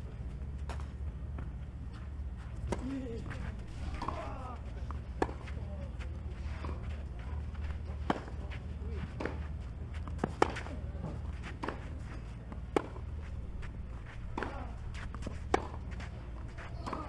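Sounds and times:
low hum: 0.0 - 17.0
tennis ball bouncing: 0.3 - 17.0
racket hitting tennis ball: 2.6 - 5.6, 7.5 - 17.0
faint voices: 2.6 - 17.0.

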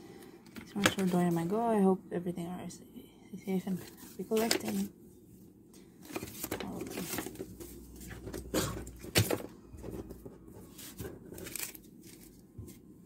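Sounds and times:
plastic sleeves rustling: 3.6 - 4.9, 6.0 - 12.9.

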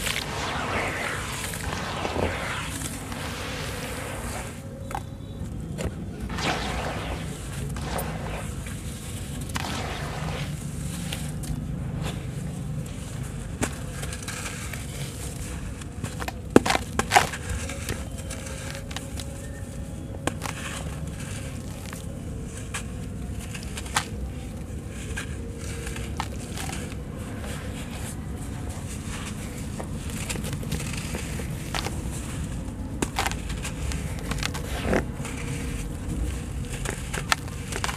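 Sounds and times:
sharp cracks: 0.0 - 5.1, 6.2 - 13.8.

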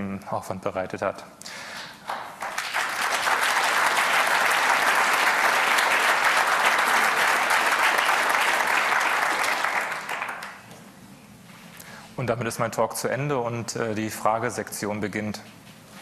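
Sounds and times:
audience applauding: 2.0 - 10.7.

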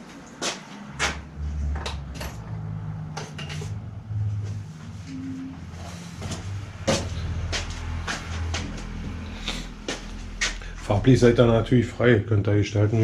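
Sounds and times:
low steady hum: 1.3 - 13.0
tools clicking and knocking: 1.7 - 3.8.

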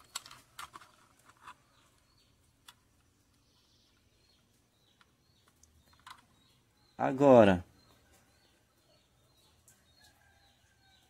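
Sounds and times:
faint plastic clicks: 0.0 - 6.4.

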